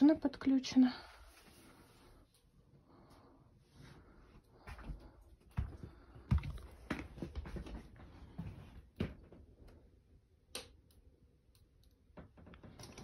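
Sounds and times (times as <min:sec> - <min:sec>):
footsteps: 0:04.6 - 0:09.4.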